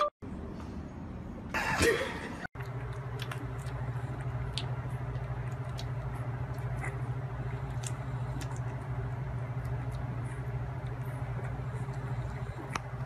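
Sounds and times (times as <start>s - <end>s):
steady low hum: 0.0s - 13.0s
puppies suckling: 2.6s - 13.0s.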